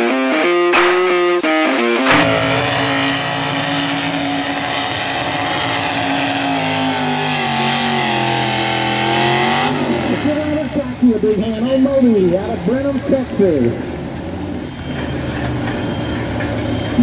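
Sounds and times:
tractor engine running: 0.7s - 17.0s.

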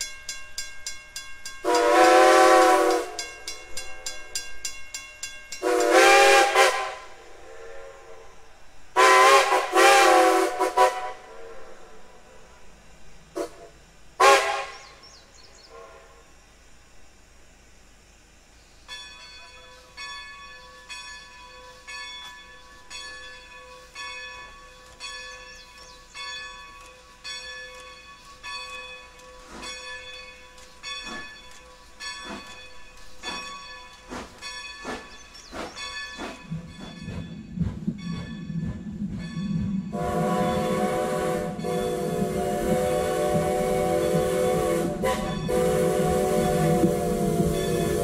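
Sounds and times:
crossing signal bell ringing: 0.0s - 6.2s, 18.9s - 40.9s, 45.1s - 46.8s
train rumble: 0.0s - 48.0s
steam whistle blowing: 1.6s - 3.3s, 5.6s - 8.4s, 9.0s - 11.8s, 13.4s - 15.0s, 15.6s - 16.2s, 39.9s - 48.0s.

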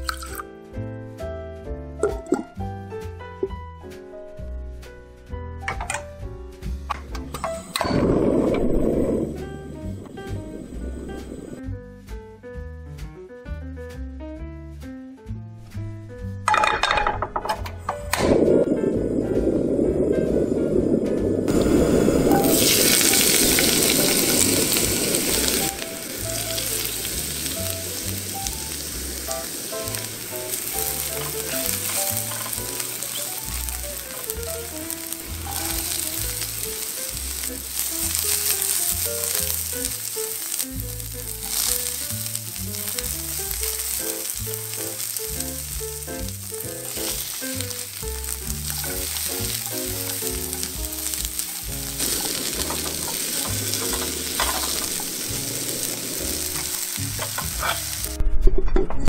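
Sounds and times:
food sizzling in hot oil: 0.0s - 0.4s, 7.3s - 11.6s, 18.0s - 58.2s
soft background music with bass: 0.0s - 59.0s
spatula stir-frying: 21.5s - 58.2s.

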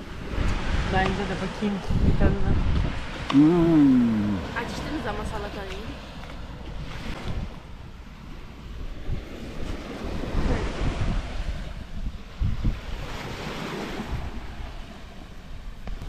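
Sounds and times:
surf washing onto beach: 0.0s - 16.0s
wind buffeting microphone: 0.0s - 16.0s.

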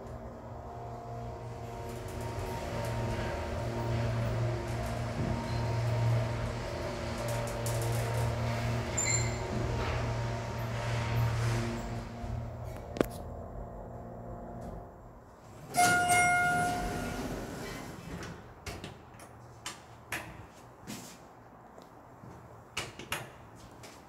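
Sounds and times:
elevator hum: 0.0s - 18.7s
elevator doors sliding open: 0.1s - 13.0s, 15.5s - 19.1s
elevator chime ringing: 15.7s - 17.5s.

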